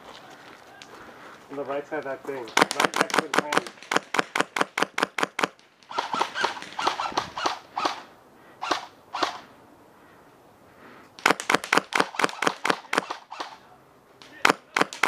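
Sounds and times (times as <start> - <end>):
airsoft gun firing shots: 2.5 - 8.0, 8.6 - 9.4, 11.2 - 13.6, 14.3 - 15.0.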